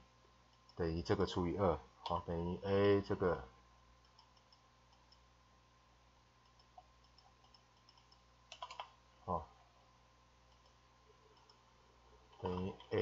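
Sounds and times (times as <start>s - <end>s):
keyboard keystrokes: 6.5s - 8.9s.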